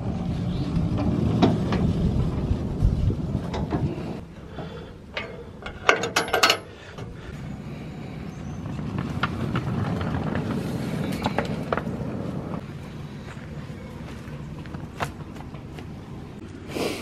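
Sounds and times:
wagon rolling on rails: 0.0 - 16.3
metal clanks of wagon coupling: 3.4 - 7.2.

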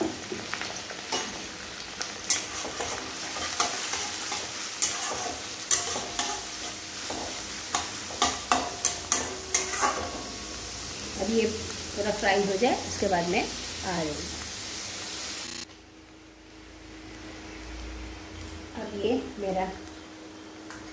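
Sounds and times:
onions sizzling in hot oil: 0.0 - 20.9
metal spatula scraping a pan: 2.3 - 10.4.

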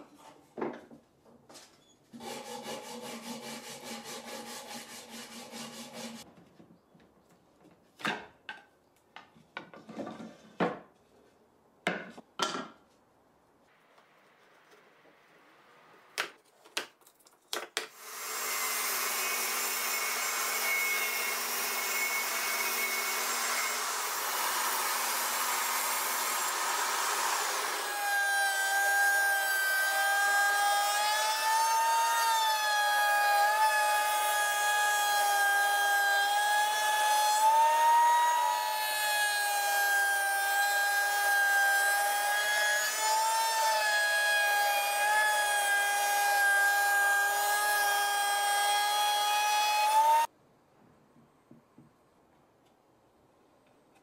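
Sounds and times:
router motor whining: 18.0 - 50.3.

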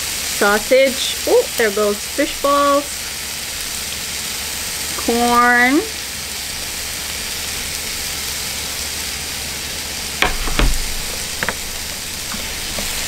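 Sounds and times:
meat sizzling on griddle: 0.0 - 13.0
knocks: 10.2 - 13.0.

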